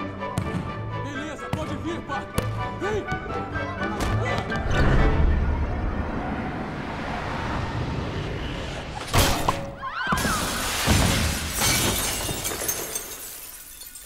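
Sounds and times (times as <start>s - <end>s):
glass backboard shattering: 10.2s - 14.0s
glass shards pouring down: 10.4s - 14.0s.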